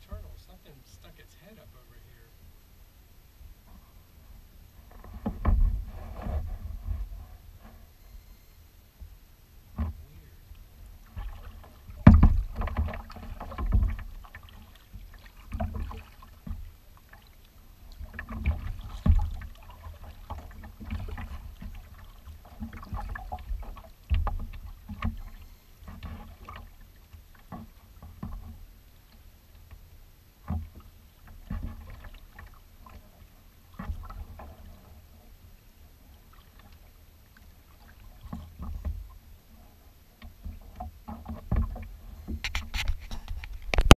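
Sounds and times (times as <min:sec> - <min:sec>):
water slapping against hull: 0:03.6 - 0:07.9, 0:09.7 - 0:43.9
paddle strokes splashing: 0:09.7 - 0:43.9.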